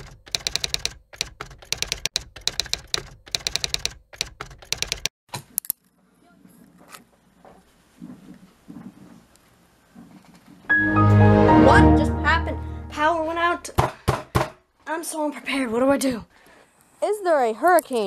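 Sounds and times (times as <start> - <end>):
keyboard typing clicks: 0.0 - 5.1.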